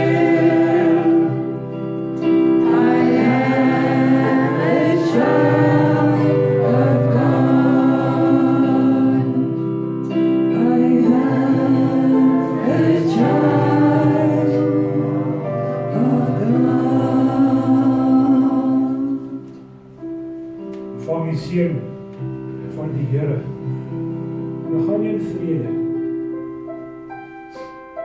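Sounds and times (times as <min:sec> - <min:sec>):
group singing held notes: 0:00.0 - 0:19.7.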